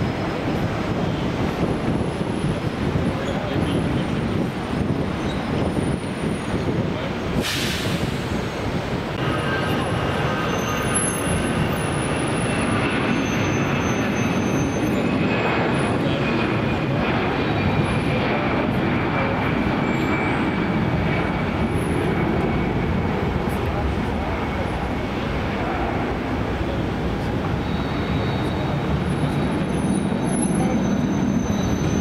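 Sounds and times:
jet engines roaring: 0:00.0 - 0:32.0
short hiss: 0:07.4 - 0:08.2.

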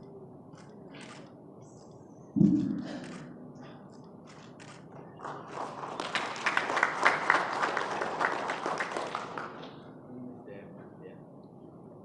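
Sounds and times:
audience applause: 0:05.2 - 0:09.8.

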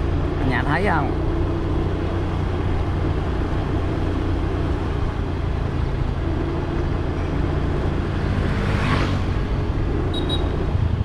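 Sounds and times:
road and wind noise: 0:00.0 - 0:11.0.

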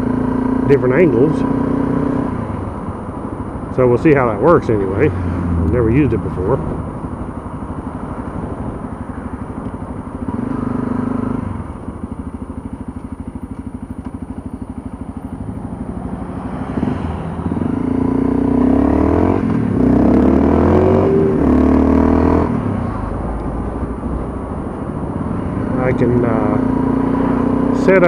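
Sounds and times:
motorcycle engine accelerating: 0:00.0 - 0:28.0.

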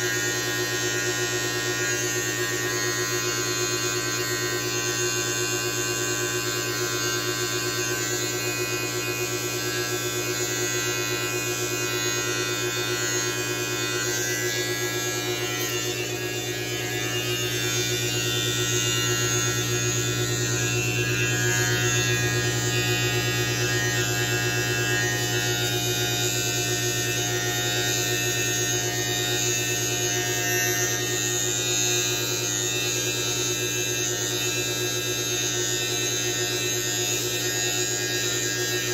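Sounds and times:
electric hair trimmer buzzing: 0:00.0 - 0:38.9.

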